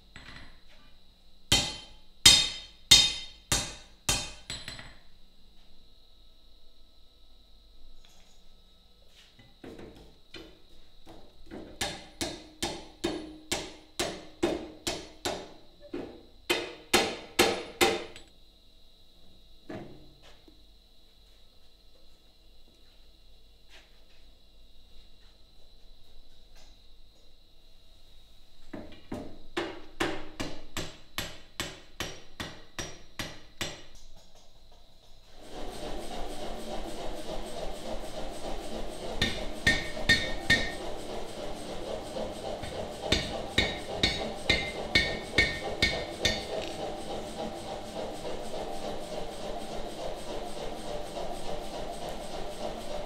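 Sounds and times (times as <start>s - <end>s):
hammer striking iron on anvil: 1.5s - 5.0s, 11.8s - 15.5s, 16.5s - 18.3s, 30.0s - 33.9s, 39.2s - 40.8s, 43.1s - 46.5s.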